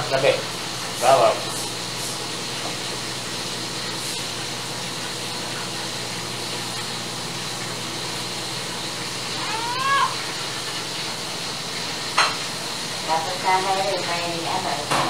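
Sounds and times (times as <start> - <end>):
cat meowing: 9.4 - 10.3.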